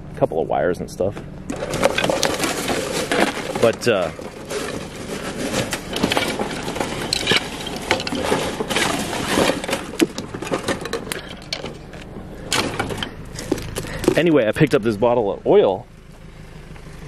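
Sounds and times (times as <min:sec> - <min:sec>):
junk knocking and clattering: 0:01.1 - 0:14.9
rustling: 0:01.2 - 0:14.3.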